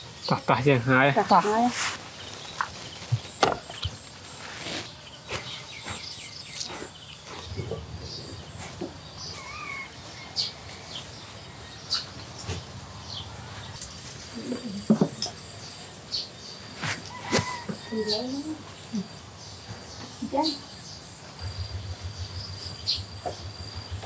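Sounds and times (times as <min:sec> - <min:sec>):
faint high bird chirps: 0:05.0 - 0:16.4.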